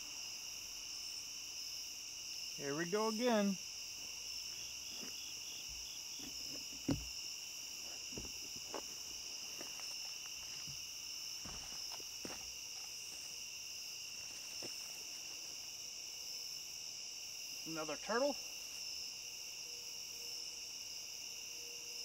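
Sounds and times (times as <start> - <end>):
crickets and night insects trilling: 0.0 - 22.0
knocks and rustles of movement: 4.6 - 13.3.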